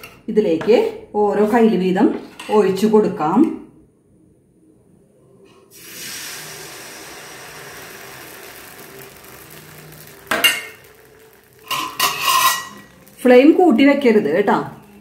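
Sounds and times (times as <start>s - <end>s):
batter sizzling on pan: 5.7s - 15.0s
utensils clinking: 11.6s - 13.1s.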